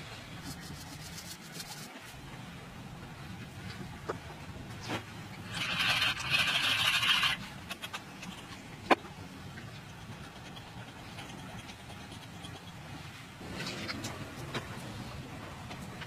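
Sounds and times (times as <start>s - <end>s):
rough rasping scrape: 4.9s - 7.4s.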